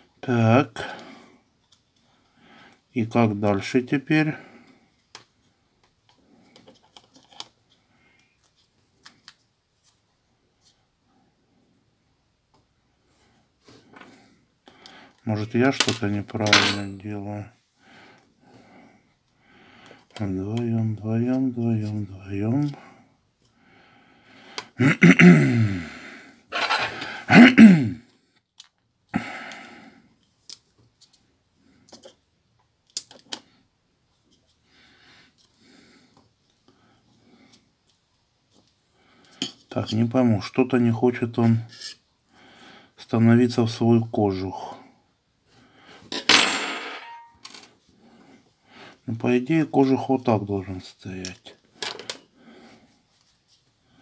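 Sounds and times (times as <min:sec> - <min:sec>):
man making wordless vocal sounds: 0:24.8 - 0:26.0
small plastic parts clicking: 0:28.4 - 0:28.8, 0:31.9 - 0:33.5
plastic phone parts clicking: 0:32.8 - 0:33.4.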